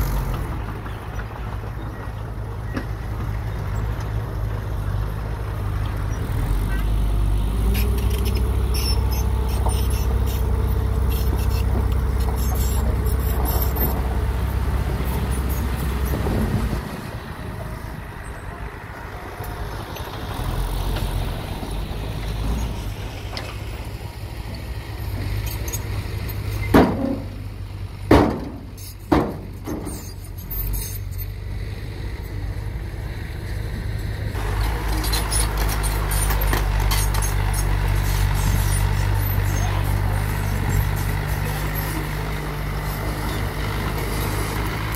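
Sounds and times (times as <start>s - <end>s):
diesel truck engine running: 0.0s - 44.9s
sharp bangs: 26.7s - 29.9s.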